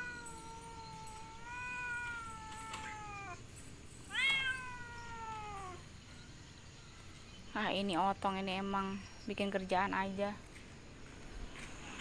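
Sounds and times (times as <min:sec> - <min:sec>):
cat meowing: 0:00.0 - 0:03.4, 0:04.1 - 0:05.8.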